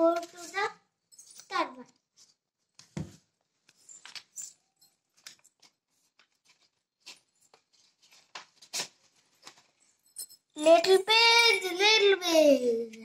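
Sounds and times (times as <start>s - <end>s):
paper rustling: 2.1s - 10.0s.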